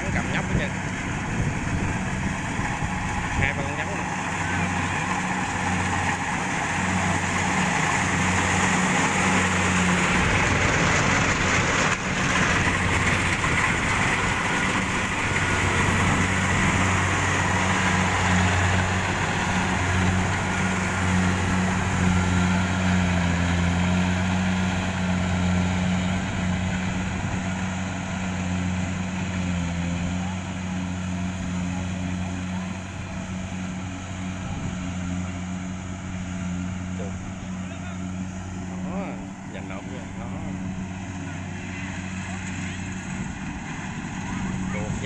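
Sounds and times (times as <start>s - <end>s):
combine harvester engine drone: 0.0s - 45.0s
rushing of cutting and threshing: 0.0s - 45.0s.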